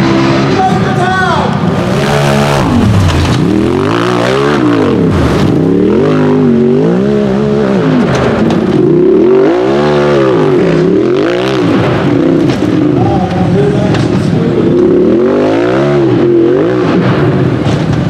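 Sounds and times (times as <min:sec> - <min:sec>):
engine revving hard: 0:01.7 - 0:13.0, 0:14.6 - 0:17.6.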